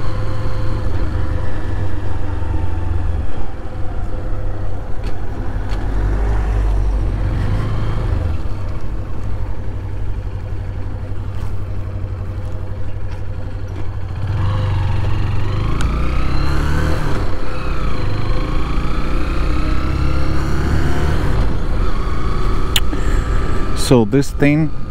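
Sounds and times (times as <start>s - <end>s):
motorcycle engine accelerating: 0.0s - 24.9s.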